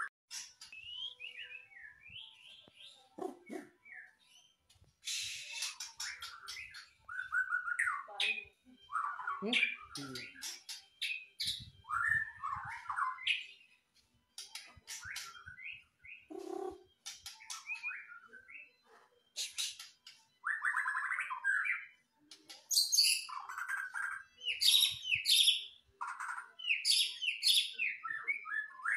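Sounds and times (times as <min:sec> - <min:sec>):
bird singing whistled trills: 0:00.7 - 0:13.7, 0:19.4 - 0:22.0, 0:22.7 - 0:28.9.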